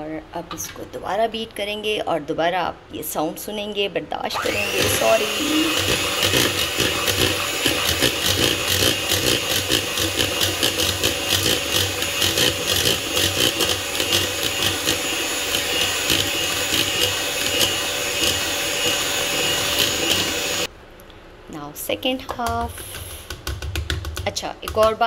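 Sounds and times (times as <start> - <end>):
electric hand mixer whining: 4.3 - 20.7.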